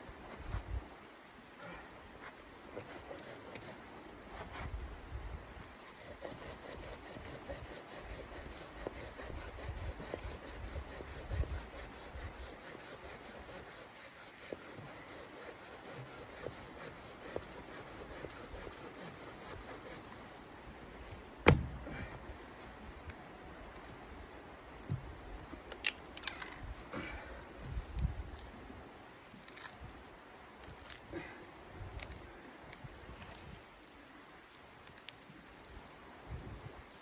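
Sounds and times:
saw rasping through wood: 0:05.8 - 0:20.3.

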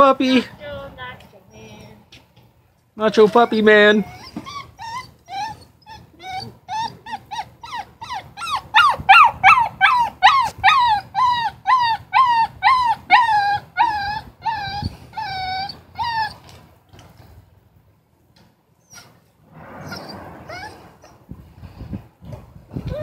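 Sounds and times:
puppy whining and crying: 0:03.1 - 0:16.7, 0:18.8 - 0:21.4, 0:22.8 - 0:23.0.

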